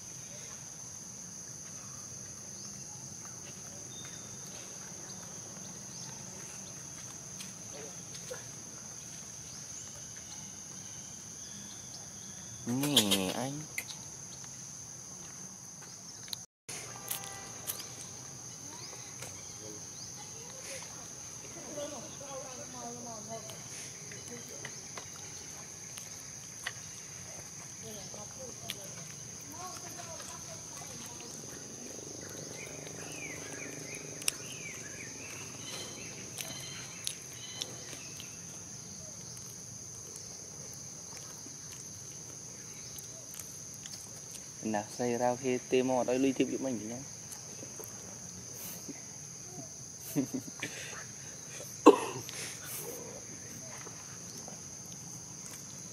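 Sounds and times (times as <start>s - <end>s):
faint chirps: 15.8s - 40.4s
high-pitched insect drone: 16.7s - 39.4s.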